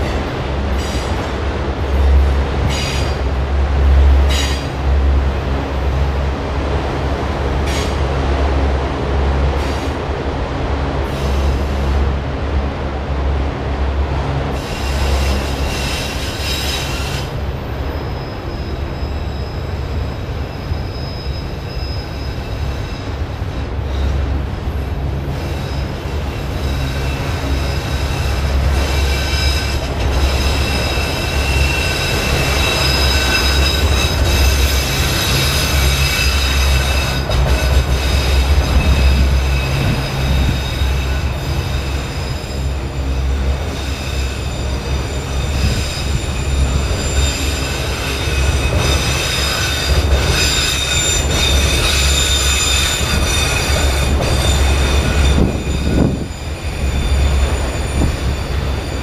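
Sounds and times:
steel wheels rumbling on rails: 0.0s - 59.0s
high thin wheel squealing: 14.6s - 23.2s, 25.3s - 59.0s.

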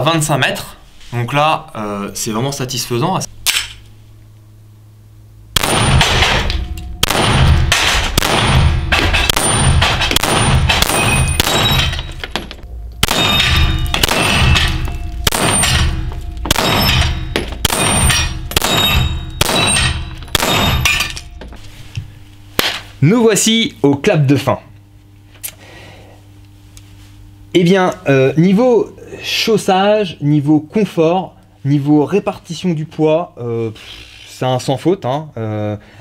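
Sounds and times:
pistol shots: 5.6s - 12.1s, 13.0s - 21.2s
steel gong clanging: 5.6s - 21.5s.

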